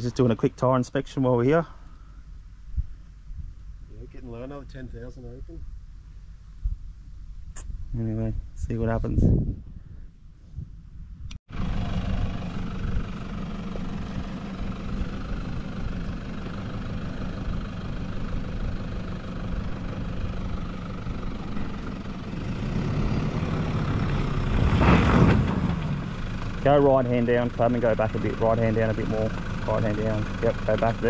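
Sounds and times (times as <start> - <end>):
off-road vehicle engine revving: 11.5 - 31.0
wheel scrabbling in loose dirt: 24.5 - 26.0.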